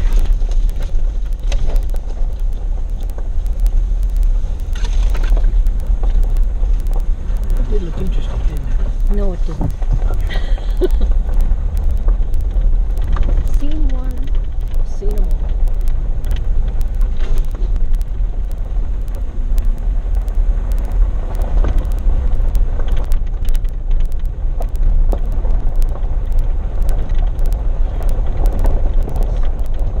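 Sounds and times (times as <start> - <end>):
gravel clicks and rattles: 0.0 - 30.0
vehicle engine and tyre rumble: 0.0 - 30.0.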